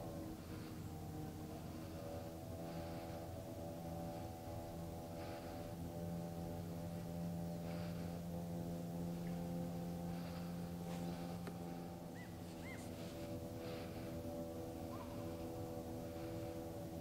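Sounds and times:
low drone of held tones: 0.0s - 17.0s
faint bird chirps: 12.1s - 13.0s.

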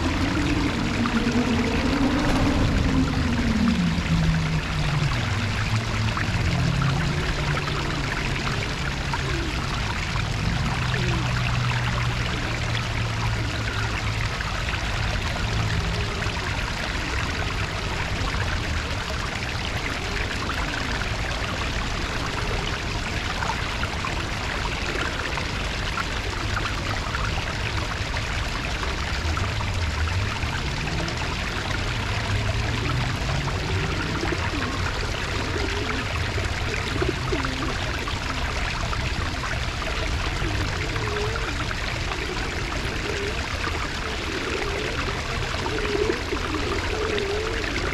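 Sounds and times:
low wavering hum: 0.0s - 47.9s
running water rushing: 0.0s - 47.9s.

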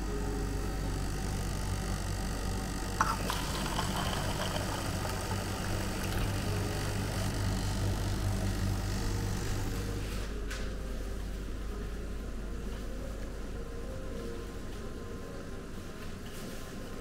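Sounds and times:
drink dispenser humming: 0.0s - 10.3s
cola pouring into a cup: 3.0s - 9.8s.

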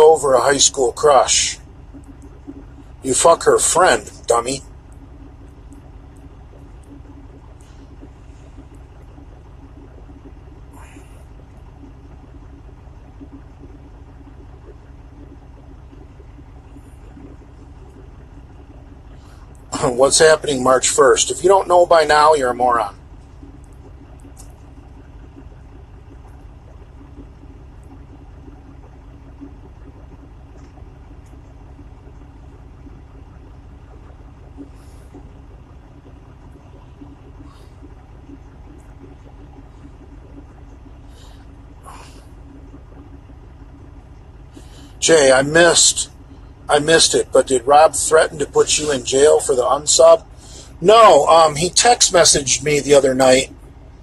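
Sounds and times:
truck engine rumble: 0.0s - 54.0s
faint clicks: 1.8s - 3.0s, 4.4s - 19.8s, 23.0s - 45.0s.

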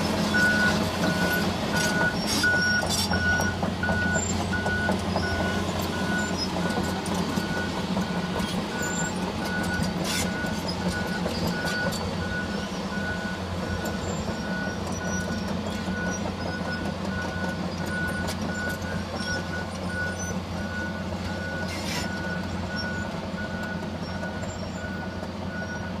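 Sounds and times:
excavator diesel engine running: 0.0s - 26.0s
travel alarm beeping: 0.3s - 15.3s.

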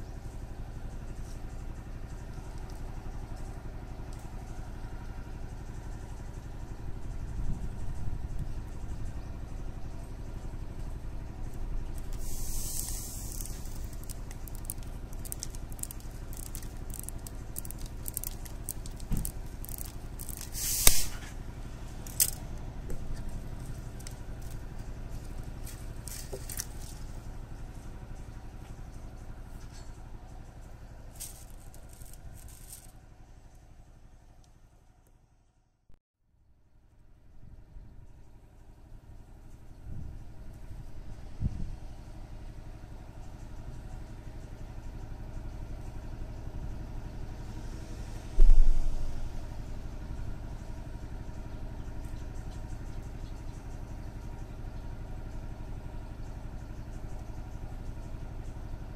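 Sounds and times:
steady low rumble: 0.0s - 35.8s
clicks and scraping rustles: 11.8s - 27.2s, 31.1s - 33.0s
loud sharp click: 20.7s - 21.3s.

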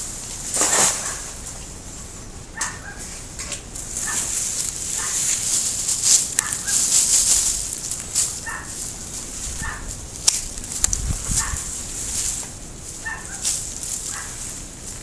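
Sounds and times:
leafy branches rustling: 0.0s - 15.0s
animal calling: 2.5s - 3.2s, 4.0s - 5.4s, 6.4s - 6.9s, 8.3s - 8.9s, 9.6s - 10.0s, 13.0s - 14.4s
pruning shears snipping: 3.4s - 9.0s, 9.6s - 14.6s.

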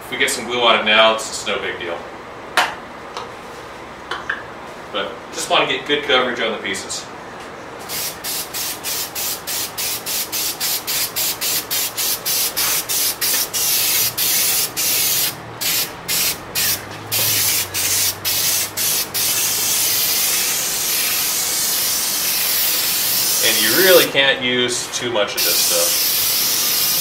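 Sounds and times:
aerosol can spraying: 7.9s - 23.9s, 25.4s - 27.0s.

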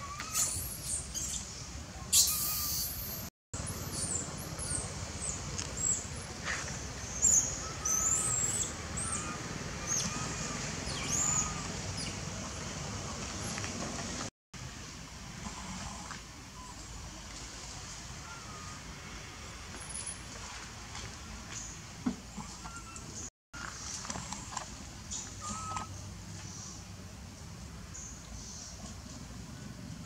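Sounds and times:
young monkey squealing: 0.0s - 1.4s, 2.1s - 3.3s, 7.2s - 12.1s, 25.4s - 25.9s.

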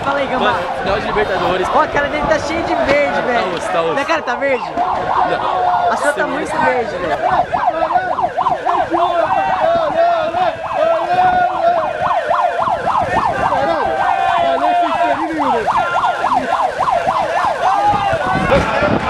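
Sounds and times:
crowd cheering: 0.0s - 19.0s
siren yelping and wailing: 0.0s - 19.0s.

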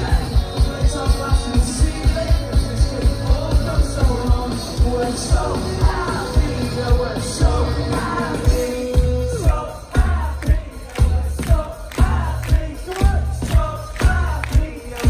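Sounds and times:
live rock band over pa: 0.0s - 15.0s
person singing: 0.0s - 15.0s
kick drum beat: 9.5s - 15.0s.

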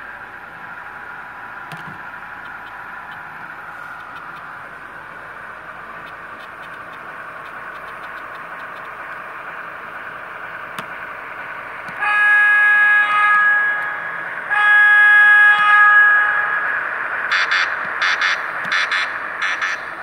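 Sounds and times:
model train running: 0.0s - 20.0s
model train horn blasts: 11.9s - 16.6s.

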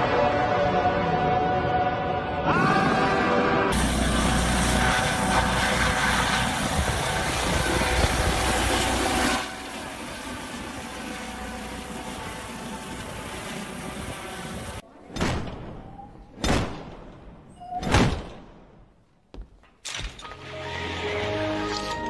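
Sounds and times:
helicopter hovering: 3.7s - 14.8s.

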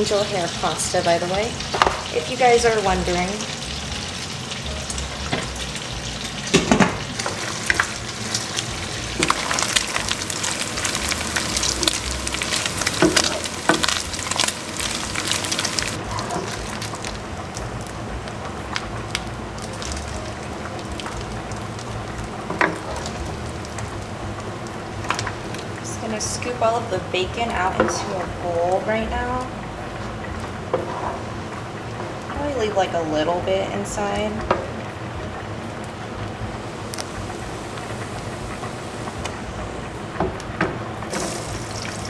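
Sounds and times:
bacon sizzling and popping: 0.0s - 33.0s, 33.8s - 42.0s.

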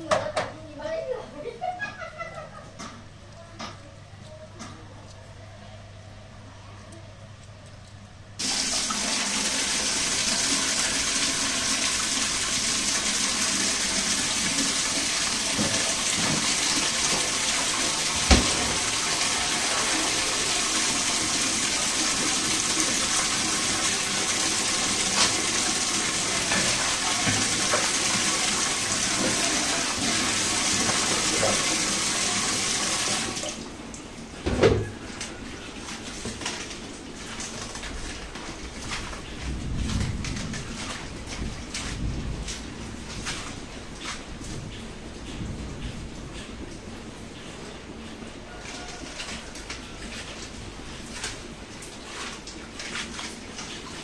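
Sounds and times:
tap water pouring into metal pot: 8.4s - 33.7s
thump: 18.3s - 18.7s.

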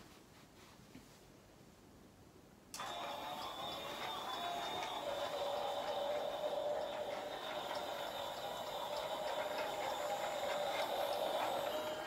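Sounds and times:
toy train motor whine: 2.8s - 12.0s
wheels clicking on rails: 2.8s - 12.0s.

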